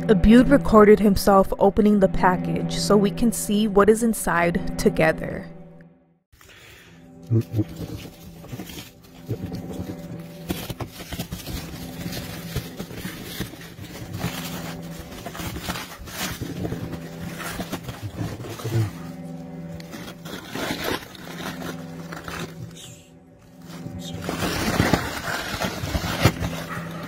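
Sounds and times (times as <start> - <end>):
low hum: 0.0 - 27.0
plastic and cardboard rustling: 7.7 - 22.9, 23.6 - 27.0.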